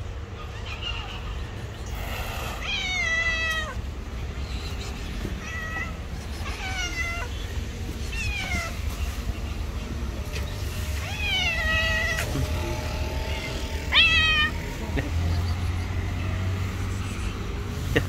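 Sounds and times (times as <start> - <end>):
low city traffic rumble: 0.0 - 18.0
cat meowing: 2.5 - 3.8, 5.4 - 7.5, 8.1 - 8.8, 11.0 - 14.7.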